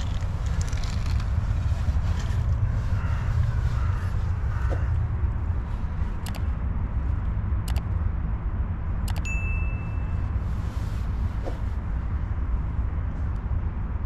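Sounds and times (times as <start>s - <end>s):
low outdoor rumble: 0.0s - 14.0s
bell ding: 9.2s - 10.3s.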